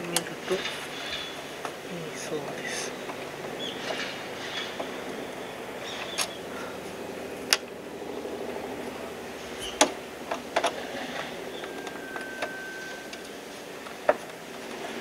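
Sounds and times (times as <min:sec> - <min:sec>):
steady hum: 0:00.0 - 0:15.0
faint steady tone: 0:04.9 - 0:15.0.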